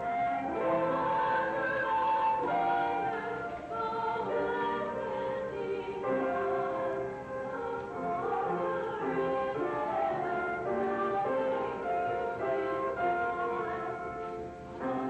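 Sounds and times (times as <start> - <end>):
flute: 0.0 - 15.0
woman singing: 0.0 - 15.0.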